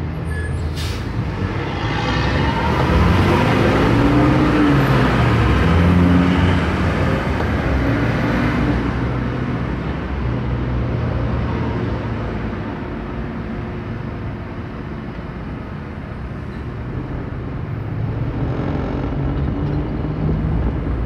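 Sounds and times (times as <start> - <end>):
road noise inside car: 0.0 - 21.0
car engine: 0.7 - 8.8.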